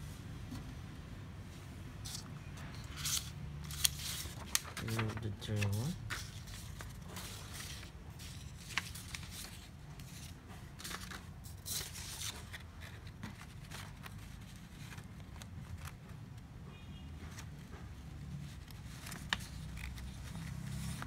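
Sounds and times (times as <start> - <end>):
paper rustling and clicking: 2.1 - 16.2, 18.4 - 21.0.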